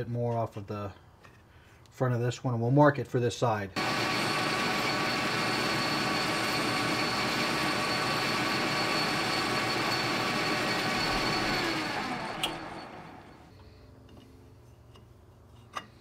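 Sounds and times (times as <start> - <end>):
lathe spinning down: 3.8 - 13.5
metal lathe running: 3.8 - 13.5.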